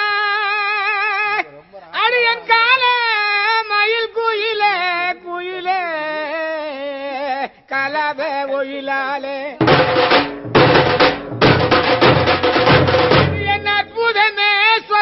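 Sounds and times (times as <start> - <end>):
drums: 9.6 - 14.2.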